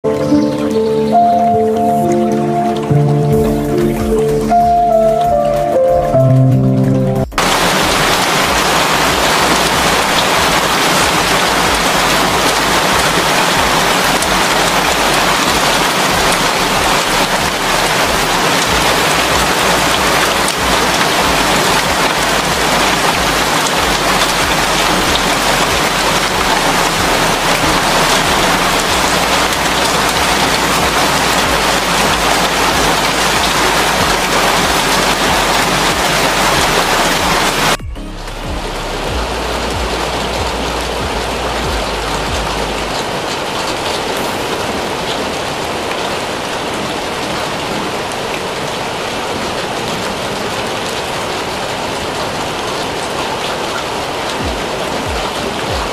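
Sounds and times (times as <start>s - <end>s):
heavy rain on corrugated iron: 0.0s - 55.9s
water streaming off roof: 7.4s - 37.8s, 38.6s - 55.9s.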